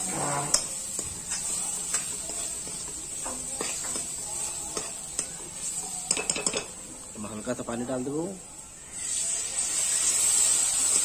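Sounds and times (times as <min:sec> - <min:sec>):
metal spatula scraping pan: 0:00.0 - 0:05.0
food sizzling in oil: 0:00.0 - 0:11.0.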